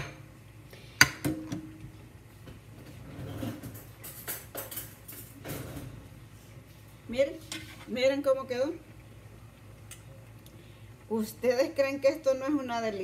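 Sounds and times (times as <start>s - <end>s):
dishes and utensils clattering: 3.0s - 6.0s.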